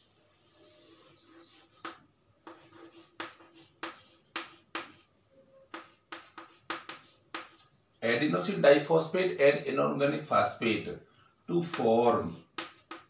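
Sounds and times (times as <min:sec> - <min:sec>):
chalk tapping on chalkboard: 0:00.9 - 0:05.1, 0:05.7 - 0:07.7, 0:11.6 - 0:13.0.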